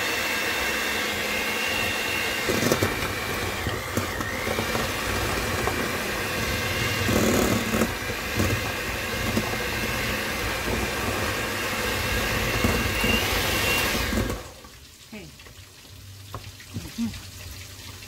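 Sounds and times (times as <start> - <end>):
mixer beaters knocking: 0.0 - 14.4
electric hand mixer whine: 0.0 - 14.7.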